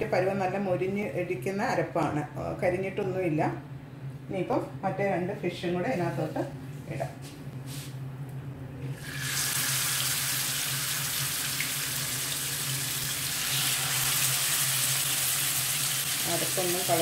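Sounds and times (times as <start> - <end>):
fish sizzling in a frying pan: 9.0 - 17.0.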